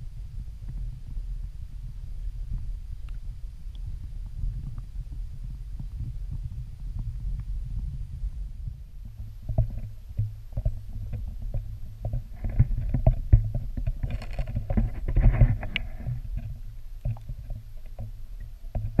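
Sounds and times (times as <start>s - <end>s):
underwater rumble: 0.0s - 19.0s
underwater clicks and knocks: 9.1s - 19.0s.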